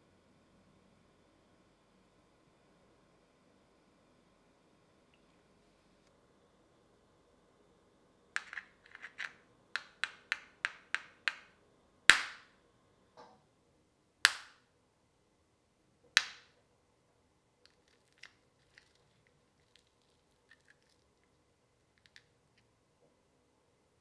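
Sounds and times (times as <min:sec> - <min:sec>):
caramel shell cracking: 0:12.1 - 0:12.5, 0:17.7 - 0:21.1.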